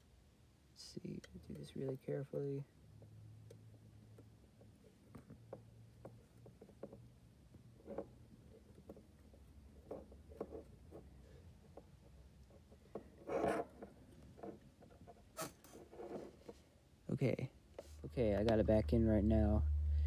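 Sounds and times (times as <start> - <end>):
faint steady hum: 0.0 - 20.0
faint clicks and scrapes: 3.0 - 16.8, 17.7 - 18.6.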